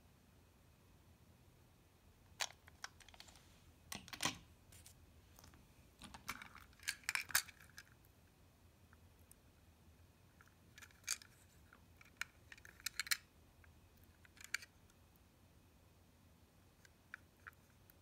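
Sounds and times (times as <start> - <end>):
plastic toy train cars clicking: 6.0 - 7.9, 12.0 - 13.2, 14.2 - 14.7.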